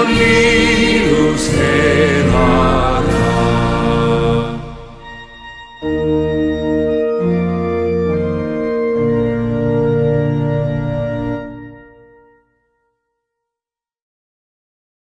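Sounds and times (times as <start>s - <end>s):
organ playing slow chords: 0.0s - 12.4s.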